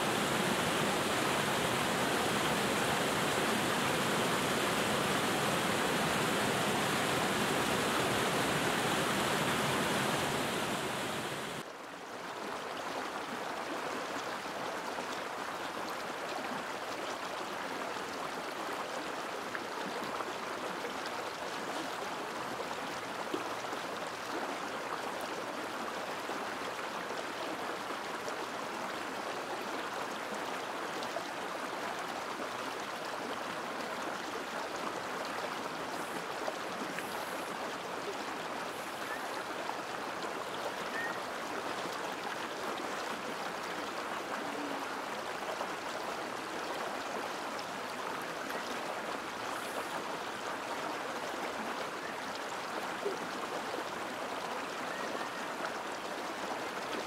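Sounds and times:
stream splashing over rocks: 0.0s - 57.0s.

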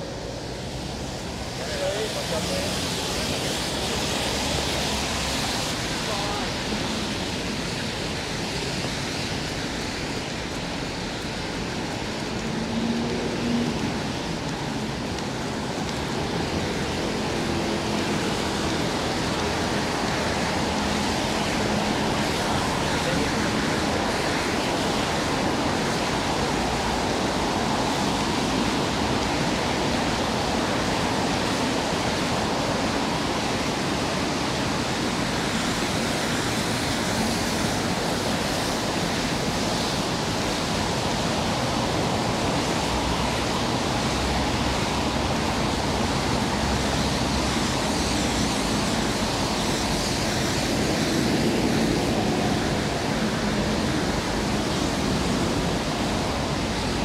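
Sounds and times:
falling rain: 0.0s - 57.0s.

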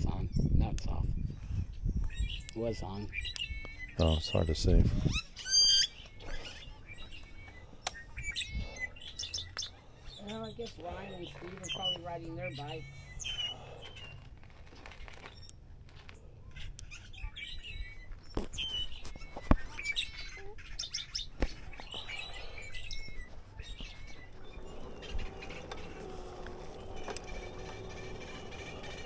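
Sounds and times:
small birds chirping: 0.0s - 29.0s
electric bike motor hum: 21.6s - 29.0s.

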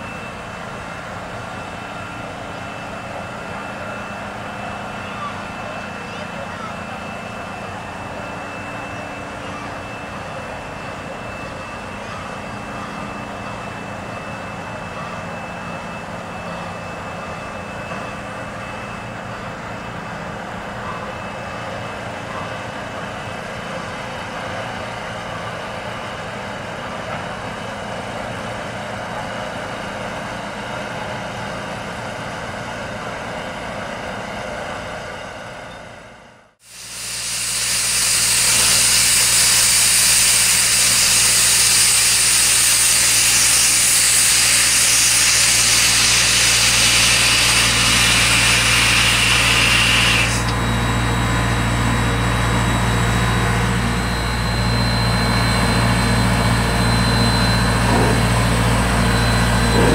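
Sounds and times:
train rumbling across trestle: 57.5s - 59.9s.

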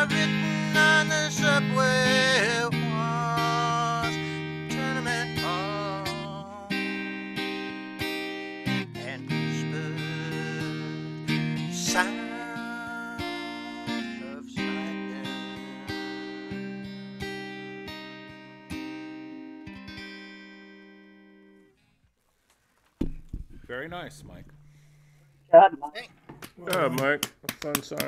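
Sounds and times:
acoustic guitar strumming chords: 0.0s - 21.6s.

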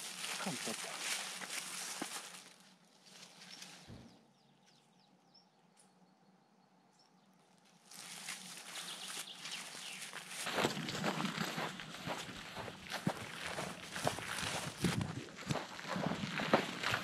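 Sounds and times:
footsteps on forest path: 0.0s - 4.8s, 7.5s - 17.0s
faint bird chirps: 8.4s - 10.2s.

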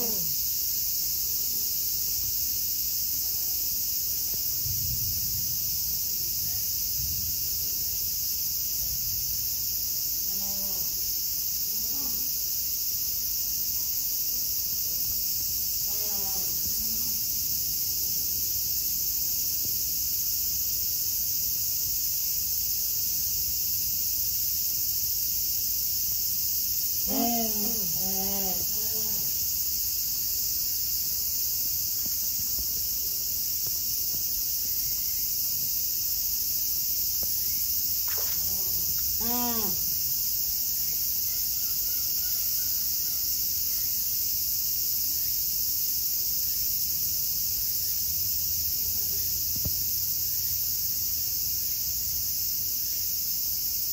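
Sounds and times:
insects chorus: 0.0s - 53.9s
voice-like calls: 27.1s - 29.3s, 38.1s - 39.9s.

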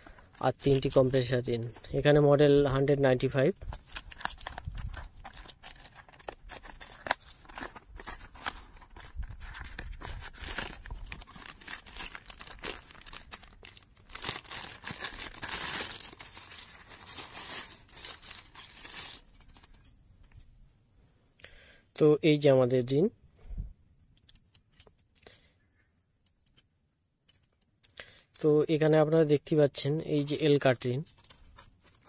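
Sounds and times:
packaging tearing and crinkling: 3.6s - 19.8s.

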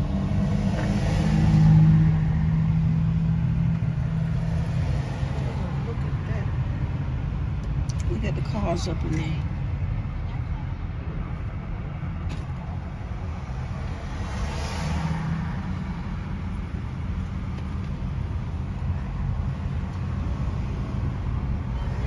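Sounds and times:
vehicle passing by: 0.0s - 6.6s, 12.6s - 17.6s
road traffic rumble: 0.0s - 22.0s.

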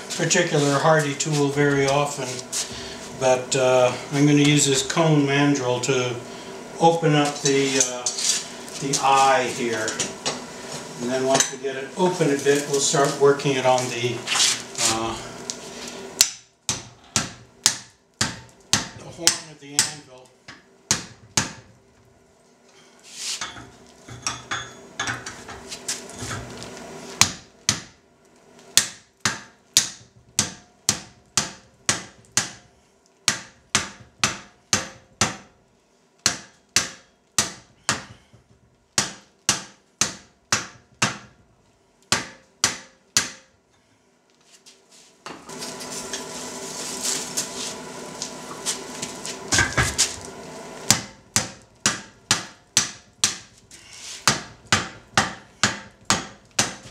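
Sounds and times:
hammer striking hot steel: 16.2s - 21.7s, 27.2s - 28.0s, 28.7s - 35.6s, 36.2s - 41.4s, 42.1s - 43.6s, 50.8s - 53.5s, 54.2s - 56.9s.

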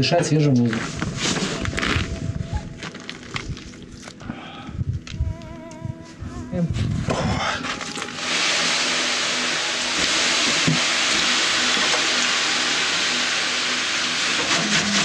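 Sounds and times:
loud steady hiss: 7.5s - 15.0s.

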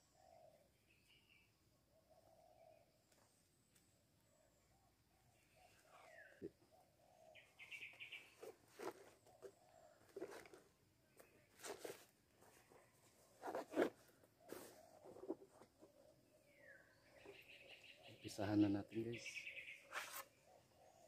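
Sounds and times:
bird chirping: 0.0s - 21.0s
hands rustling and scraping materials: 8.3s - 16.0s.

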